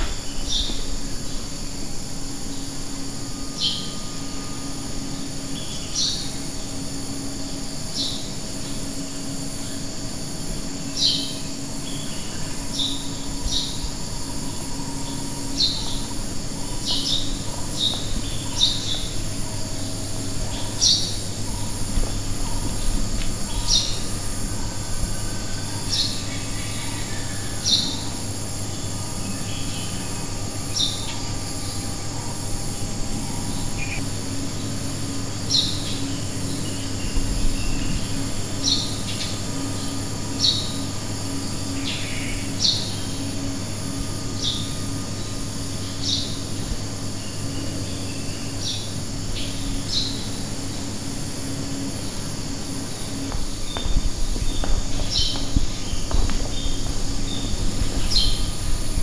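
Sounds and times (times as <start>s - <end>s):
high insect drone: 0.0s - 59.0s
steady low hum: 0.0s - 59.0s
bird chirping: 53.6s - 58.5s.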